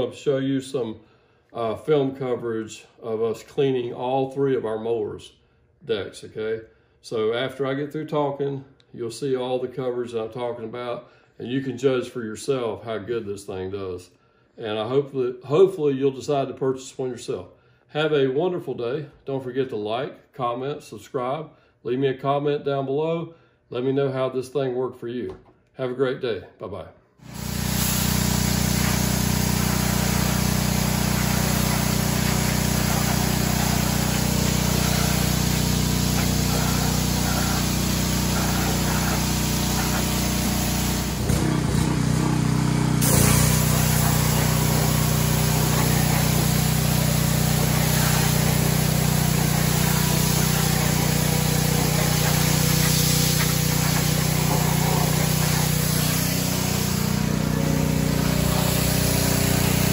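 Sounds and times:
pressure washer spray hissing: 0:27.2 - 0:59.9.

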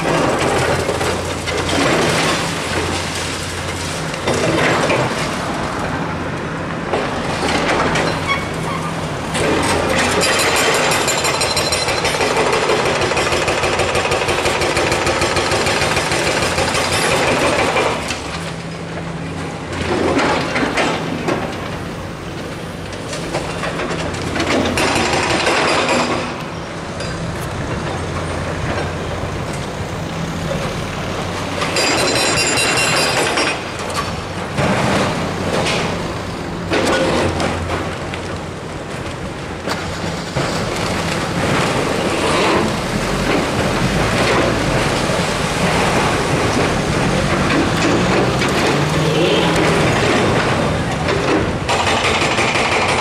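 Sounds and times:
excavator diesel engines running: 0:00.0 - 0:53.0
street traffic passing: 0:00.0 - 0:53.0
concrete rubble breaking: 0:23.4 - 0:26.4, 0:39.8 - 0:53.0.

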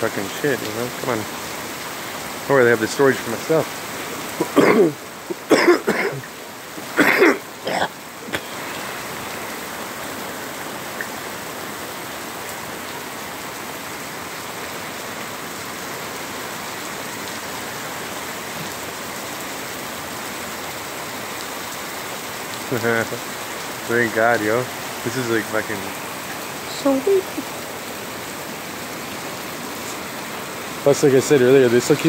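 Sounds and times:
man's voice: 0:00.0 - 0:01.3, 0:02.5 - 0:03.7, 0:22.7 - 0:23.2, 0:23.9 - 0:25.9, 0:30.8 - 0:32.0
rain on pavement: 0:00.0 - 0:32.0.

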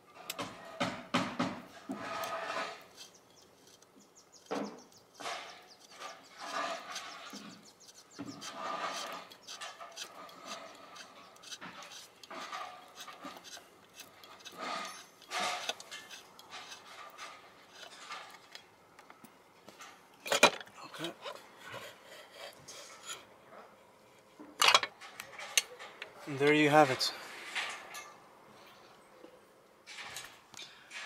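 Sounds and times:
fingers scraping metal casing: 0:00.2 - 0:18.7.

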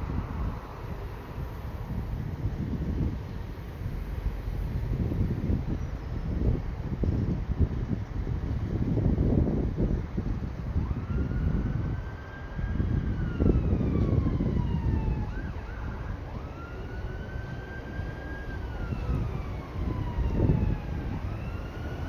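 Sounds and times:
freight wagons rumbling: 0:00.0 - 0:07.6
siren wailing: 0:10.8 - 0:22.0.

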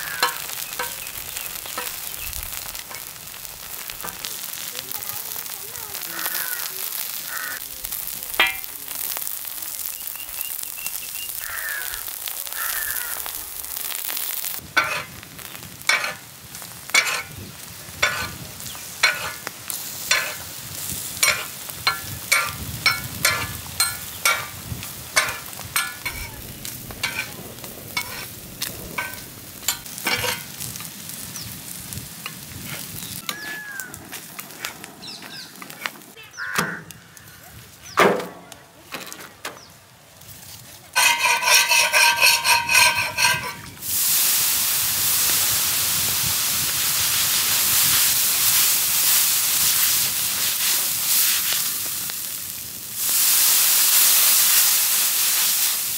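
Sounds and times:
metal spatula scraping a pan: 0:00.0 - 0:01.1, 0:14.8 - 0:15.1, 0:15.9 - 0:16.2, 0:16.9 - 0:17.3, 0:18.0 - 0:18.4, 0:19.0 - 0:19.4, 0:20.1 - 0:20.4, 0:21.2 - 0:24.5, 0:25.2 - 0:26.4, 0:27.0 - 0:27.4, 0:28.0 - 0:28.4, 0:29.0 - 0:30.7, 0:41.0 - 0:43.8
eggs sizzling in a pan: 0:00.0 - 0:38.0, 0:41.0 - 0:55.9.

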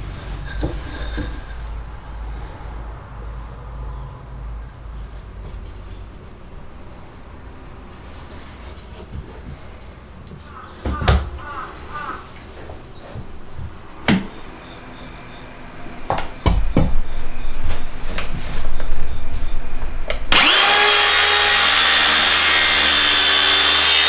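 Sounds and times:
power tool running: 0:20.1 - 0:24.0.

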